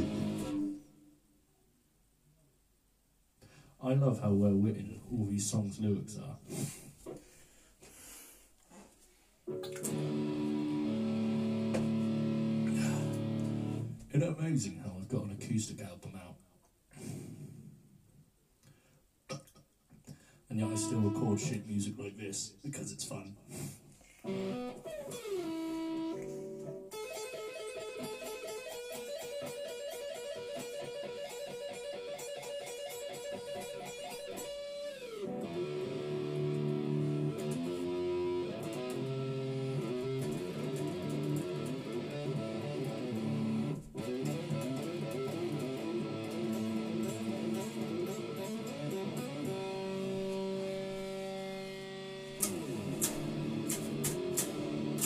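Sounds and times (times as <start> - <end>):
electric guitar riffs: 0.0 - 1.1, 9.5 - 14.0, 20.5 - 21.7, 24.2 - 55.0.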